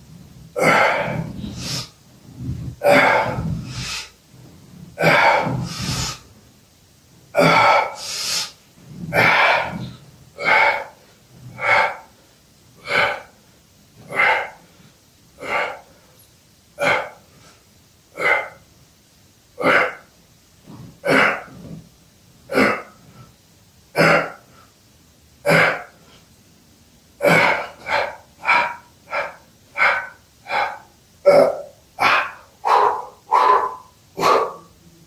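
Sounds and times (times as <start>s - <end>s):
man exhaling and grunting: 0.5s - 1.9s, 2.6s - 4.1s, 4.9s - 6.3s, 7.4s - 12.1s, 12.8s - 13.3s, 14.1s - 14.6s, 15.4s - 16.0s, 21.0s - 21.6s, 25.4s - 26.0s, 27.2s - 35.0s.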